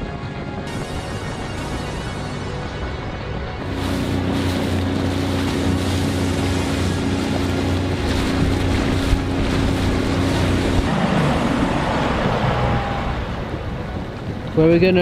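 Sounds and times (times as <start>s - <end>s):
water rushing along hull: 0.0s - 15.0s
outboard motor running: 0.6s - 14.9s
wind on microphone: 3.6s - 15.0s.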